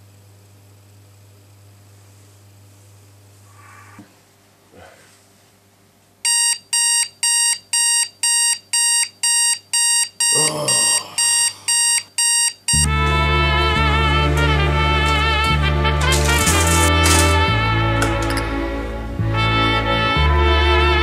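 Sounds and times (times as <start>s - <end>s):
digital alarm clock beeping: 6.3s - 12.9s
loud music: 12.9s - 20.8s.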